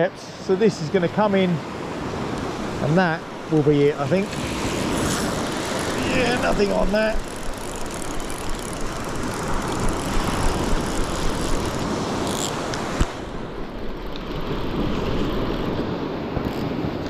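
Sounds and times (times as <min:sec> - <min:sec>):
surf washing shore: 0:00.0 - 0:17.0
wind rumbling on microphone: 0:01.6 - 0:17.0
fishing reel gears whirring: 0:04.2 - 0:13.0.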